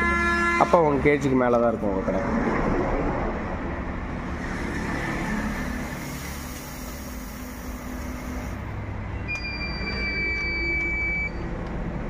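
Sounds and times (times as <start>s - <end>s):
machine feeder hum: 5.2s - 11.4s
product pouring hiss: 5.5s - 8.8s.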